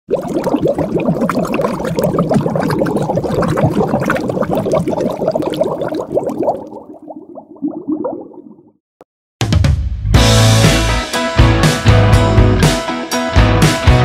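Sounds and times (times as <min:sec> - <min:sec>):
water bubbling: 0:00.1 - 0:08.8.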